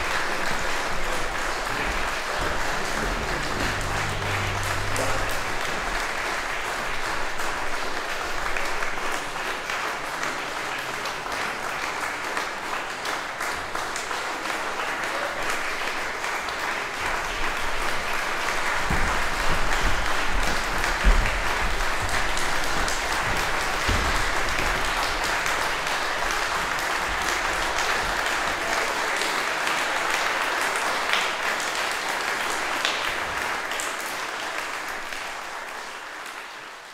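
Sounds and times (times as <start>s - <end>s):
audience applauding: 0.0s - 36.9s
low thumps: 1.6s - 6.5s.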